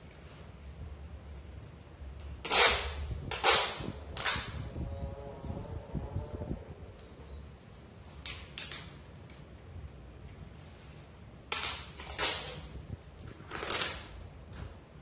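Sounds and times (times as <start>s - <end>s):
packaging rustling: 13.4s - 14.1s.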